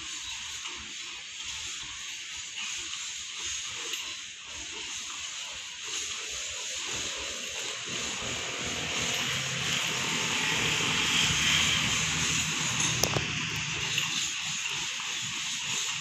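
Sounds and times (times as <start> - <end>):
constant hiss: 0.0 - 16.0
diesel locomotive engine drone: 6.0 - 16.0.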